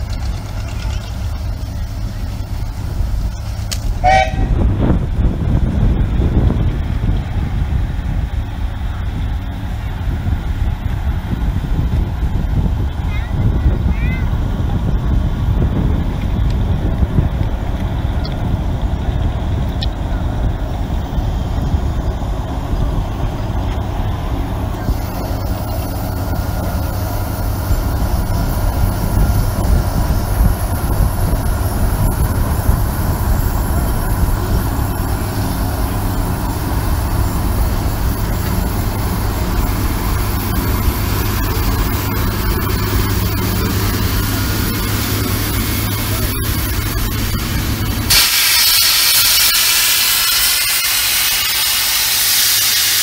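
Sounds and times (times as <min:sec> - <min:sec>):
steam engine rumbling: 0:00.0 - 0:53.0
steam hissing: 0:24.4 - 0:53.0.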